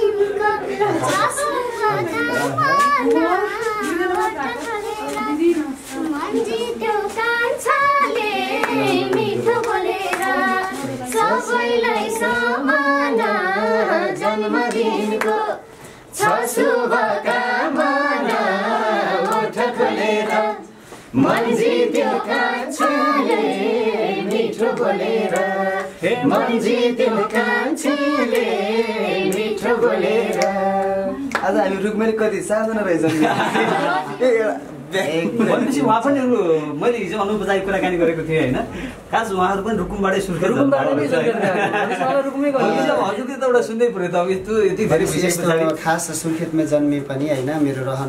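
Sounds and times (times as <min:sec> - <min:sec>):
rhythmic hand clapping: 0:00.0 - 0:15.6, 0:16.2 - 0:20.6, 0:21.2 - 0:31.8
voices singing a folk song: 0:00.0 - 0:32.2, 0:33.1 - 0:34.3.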